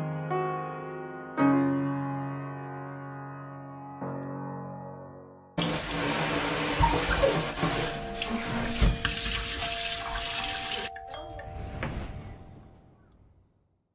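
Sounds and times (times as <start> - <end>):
water pouring over hands: 5.6 - 10.9
water spraying into steel sink: 5.6 - 10.9.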